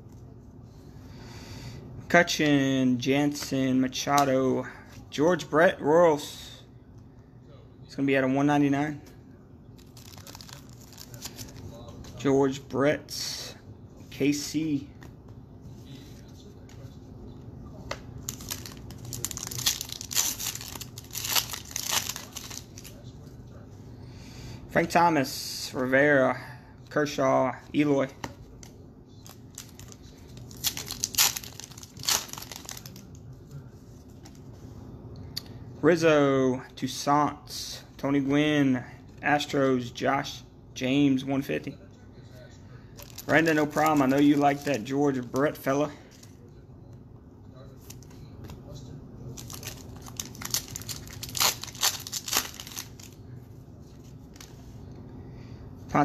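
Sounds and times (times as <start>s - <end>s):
foil wrapper crinkling and tearing: 9.8s - 11.6s, 18.2s - 23.0s, 29.2s - 33.2s, 43.0s - 45.3s, 49.4s - 53.2s.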